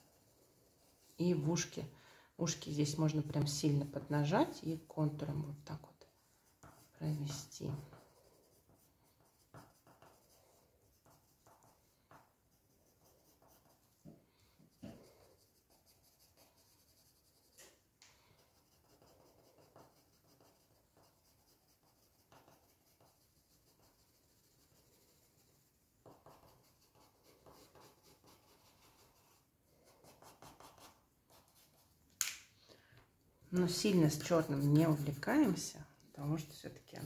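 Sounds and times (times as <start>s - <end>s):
pencil scratching on paper: 0.0s - 1.8s, 4.0s - 17.6s, 18.2s - 32.0s, 33.6s - 37.0s.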